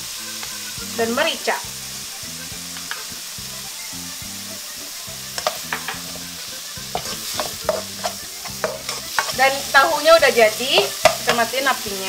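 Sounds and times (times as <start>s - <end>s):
tofu sizzling in a wok: 0.0s - 12.0s
spatula scraping a pan: 5.2s - 11.6s.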